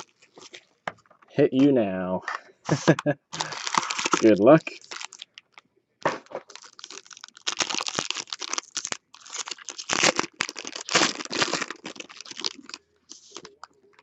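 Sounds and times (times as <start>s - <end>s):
foil wrapper crinkling: 0.0s - 0.7s, 3.4s - 5.6s, 6.2s - 14.0s.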